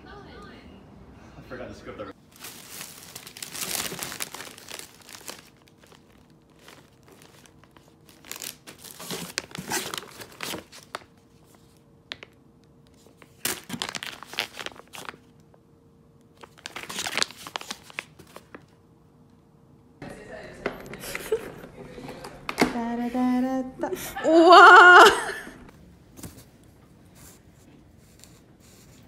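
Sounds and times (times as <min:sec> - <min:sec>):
plastic packets crinkling: 0:02.2 - 0:11.2, 0:13.2 - 0:15.3, 0:16.4 - 0:18.7.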